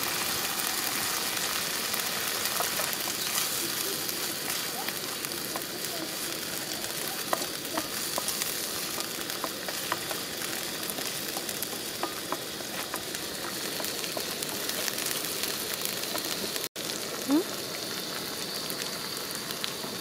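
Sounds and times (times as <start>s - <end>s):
onions sizzling in oil: 0.0s - 20.0s
wooden spatula stirring: 1.4s - 15.2s.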